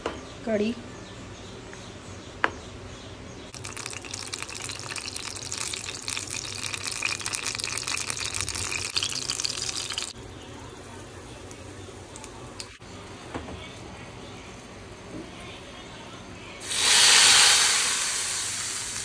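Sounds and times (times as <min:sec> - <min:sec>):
water running from a tap: 0:03.5 - 0:10.2.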